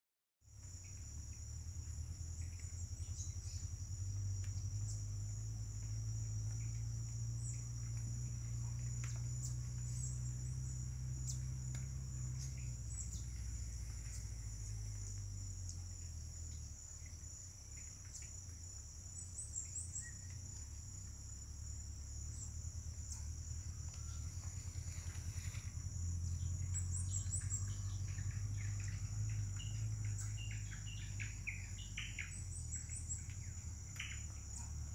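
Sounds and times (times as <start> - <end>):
insect chorus drone: 0.5 - 34.9
bird chirps: 2.4 - 5.2, 5.8 - 18.4, 19.2 - 20.8, 22.3 - 34.9
low rumble: 19.8 - 34.9.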